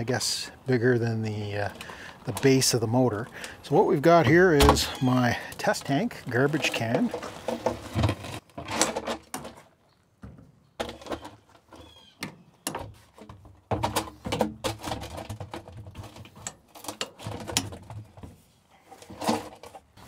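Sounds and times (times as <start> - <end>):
plastic bin knocks and scrapes: 6.6 - 9.6.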